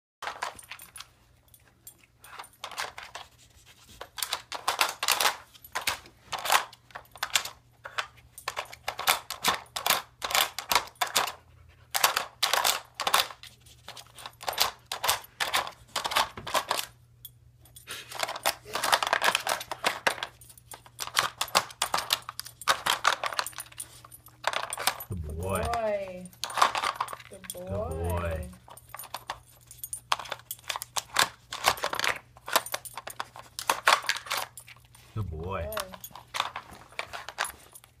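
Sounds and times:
plastic puzzle feeder clattering: 18.2s - 20.3s, 35.8s - 37.7s.

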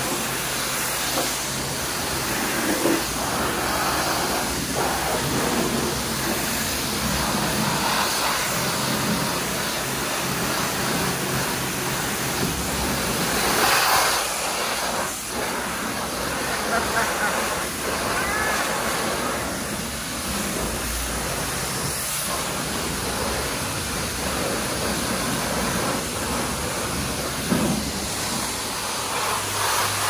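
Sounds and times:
water spray hissing on car: 0.0s - 30.0s.

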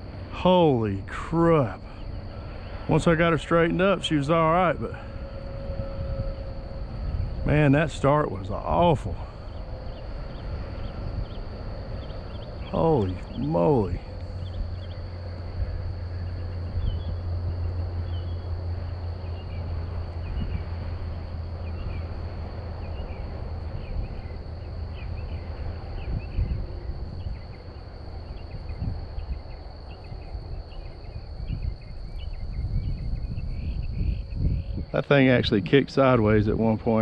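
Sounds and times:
crickets droning: 0.0s - 37.0s
low steady hum: 0.0s - 37.0s
wind rumbling on microphone: 0.0s - 37.0s
short insect chirps: 0.4s - 37.0s.

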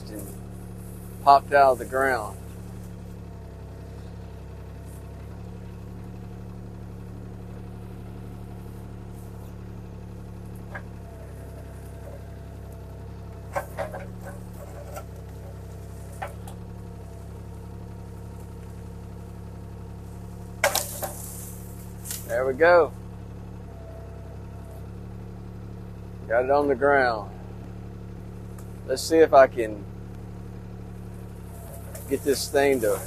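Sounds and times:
diesel engine running: 0.0s - 33.0s
tree cracking and snapping: 20.5s - 22.3s.

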